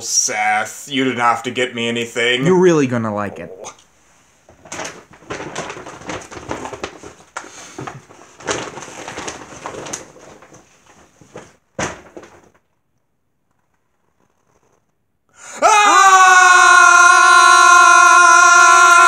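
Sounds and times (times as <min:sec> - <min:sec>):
paper rustling and crinkling: 0:04.5 - 0:12.8.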